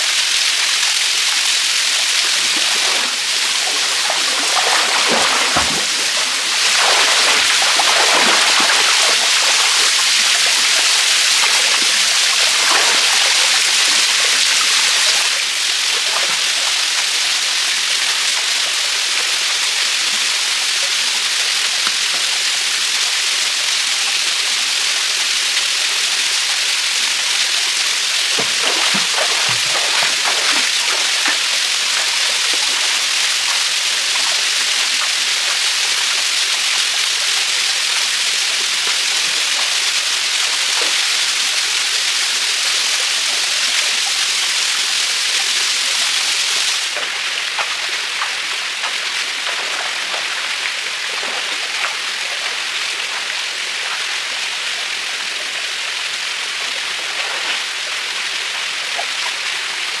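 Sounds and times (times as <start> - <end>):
waterfall rushing onto rocks: 0.0 - 60.0
light water splashing: 2.1 - 15.3, 27.9 - 36.3, 46.7 - 53.3.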